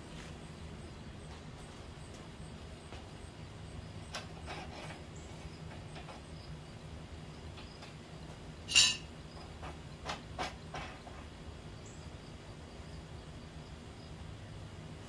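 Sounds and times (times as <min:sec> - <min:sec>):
steady low hum: 0:00.0 - 0:15.0
metallic scrape-clank: 0:08.6 - 0:09.1.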